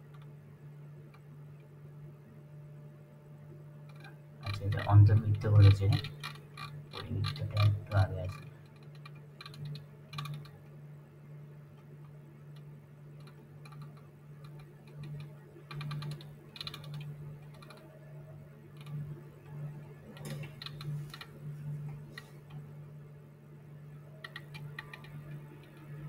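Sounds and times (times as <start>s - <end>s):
steady low hum: 0.0s - 26.0s
computer mouse scroll clicking: 3.9s - 10.6s, 12.0s - 18.1s, 18.7s - 22.6s, 24.1s - 26.0s.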